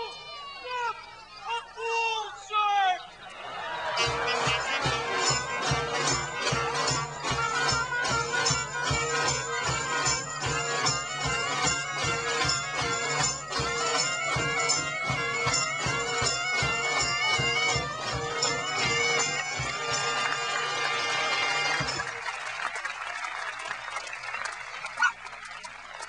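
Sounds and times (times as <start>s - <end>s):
folk band music: 3.6s - 22.2s.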